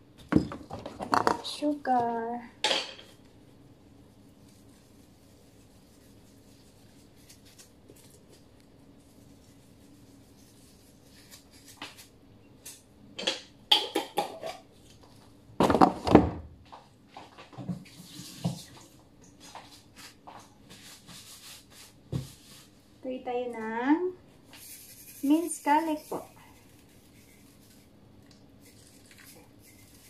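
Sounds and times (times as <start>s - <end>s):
kitchen items knocking and clinking: 0.2s - 1.6s, 2.6s - 3.2s, 13.2s - 14.7s, 15.6s - 16.5s
kitchen items clattering: 0.2s - 1.7s, 13.2s - 14.7s.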